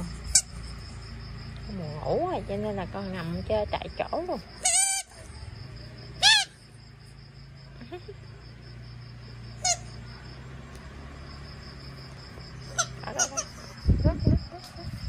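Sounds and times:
rubber squeaky ball squeaking: 0:04.6 - 0:05.2.

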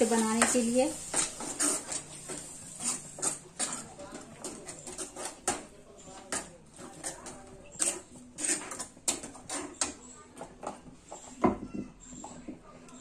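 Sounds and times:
ladle scraping metal pan: 0:00.1 - 0:10.0.

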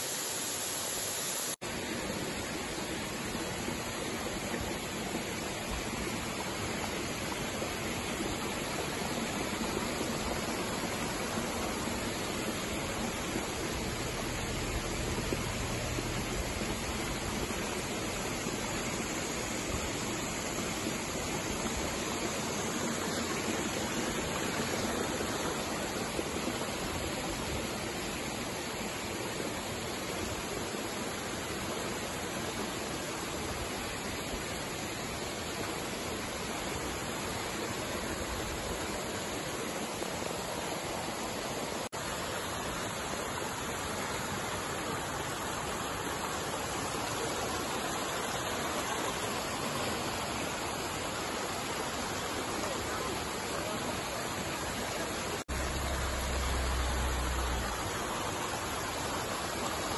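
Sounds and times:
small waterfall splashing: 0:00.0 - 0:59.9.

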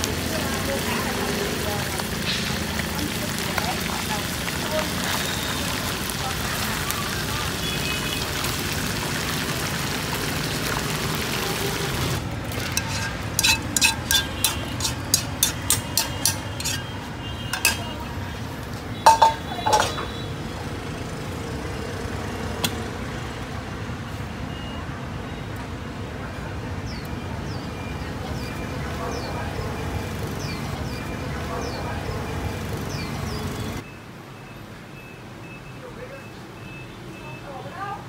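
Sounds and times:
fish sizzling in oil: 0:00.0 - 0:22.4
utensil clinking against pot: 0:12.5 - 0:18.0, 0:19.0 - 0:20.1
loud metal clanks: 0:12.7 - 0:17.0, 0:17.6 - 0:17.9, 0:19.1 - 0:20.2.

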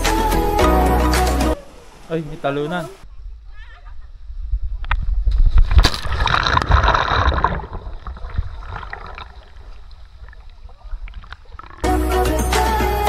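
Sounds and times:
seawater splashing and sloshing: 0:05.6 - 0:11.9.

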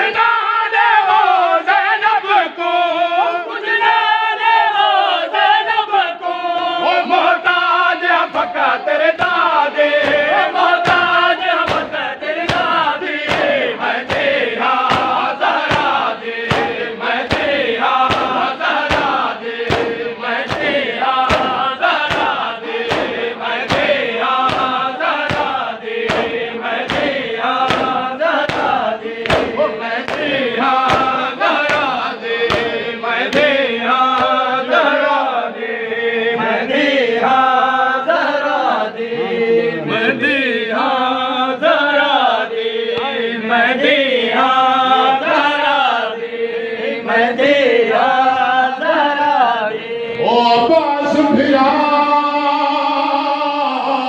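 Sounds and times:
men chanting in unison: 0:00.0 - 0:54.0
hands slapping chests: 0:08.2 - 0:34.5.

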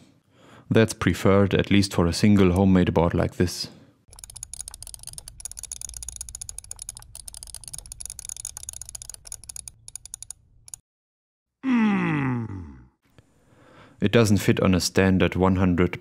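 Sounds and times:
keyboard and mouse clicking: 0:04.1 - 0:10.8.

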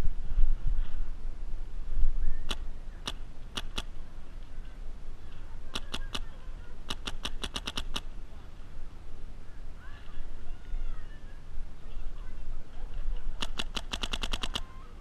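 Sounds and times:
paintball markers firing: 0:02.5 - 0:03.9, 0:06.9 - 0:08.1, 0:13.4 - 0:14.7.

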